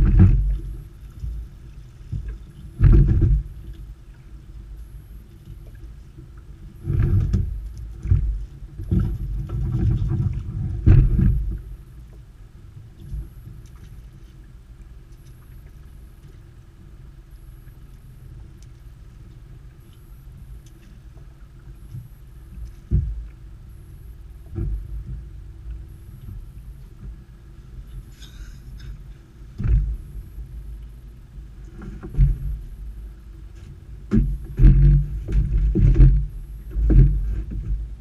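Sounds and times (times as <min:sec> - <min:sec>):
creel thumping against boat: 0:00.0 - 0:01.4, 0:02.1 - 0:03.8, 0:06.8 - 0:11.8, 0:31.7 - 0:32.7, 0:33.5 - 0:38.0
steady low rumble: 0:00.0 - 0:38.0.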